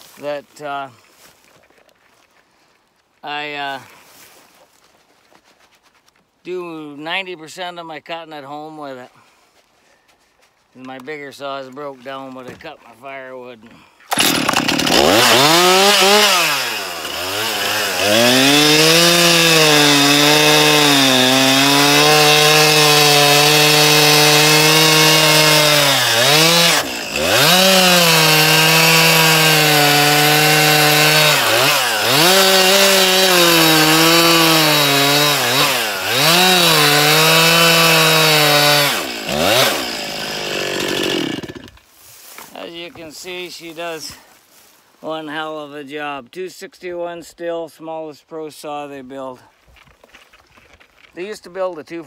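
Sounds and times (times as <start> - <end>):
chainsaw cutting through logs: 14.1 - 44.6.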